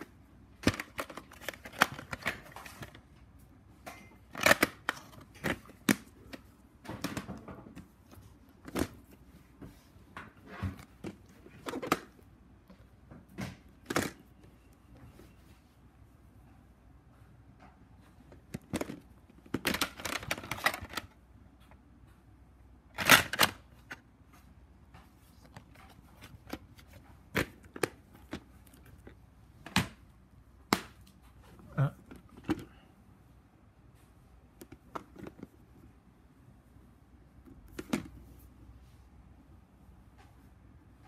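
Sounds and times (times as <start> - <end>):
plastic cases clicking: 3.9 - 7.9, 10.8 - 12.2, 18.3 - 21.1.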